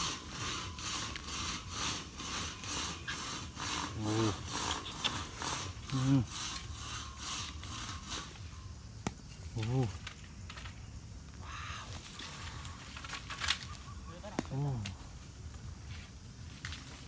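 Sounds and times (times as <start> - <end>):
steady rasping pulse: 0.0 - 8.7.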